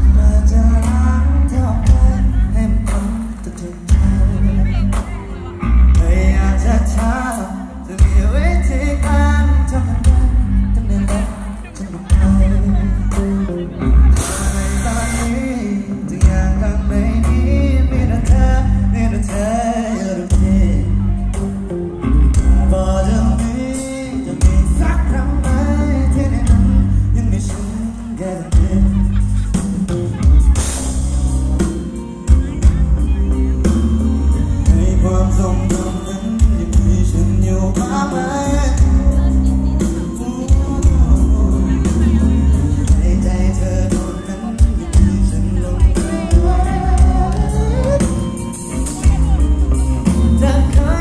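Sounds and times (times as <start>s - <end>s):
man singing lead vocals: 0.0s - 51.0s
rock band playing live: 0.0s - 51.0s
person singing long lines: 32.3s - 51.0s.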